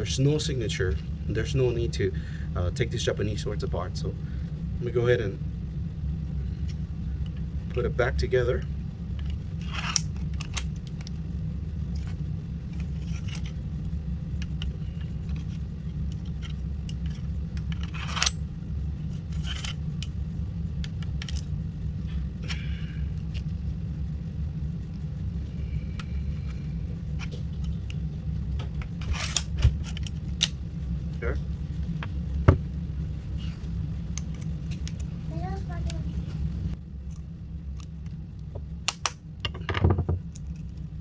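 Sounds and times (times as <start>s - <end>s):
steady low hum: 0.0s - 41.0s
metallic clicks and scrapes: 9.2s - 11.1s, 14.4s - 18.4s, 19.1s - 20.2s, 28.8s - 30.6s.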